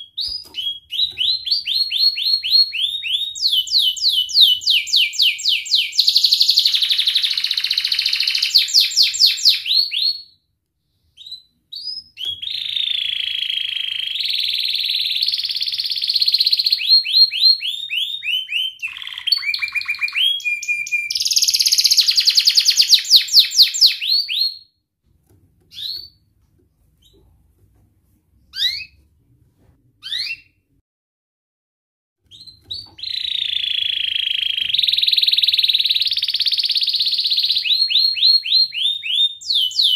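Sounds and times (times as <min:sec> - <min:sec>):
canary singing trills: 0:00.0 - 0:10.2, 0:11.2 - 0:24.6, 0:25.7 - 0:26.2, 0:28.5 - 0:29.0, 0:32.3 - 0:39.9.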